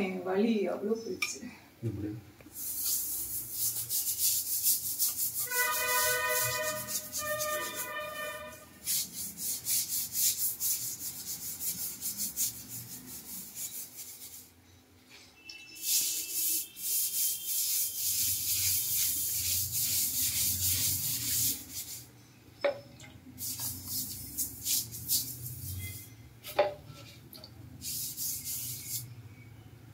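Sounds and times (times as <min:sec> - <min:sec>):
scrubber scraping ceramic tiles: 0:02.8 - 0:14.5, 0:15.8 - 0:22.1.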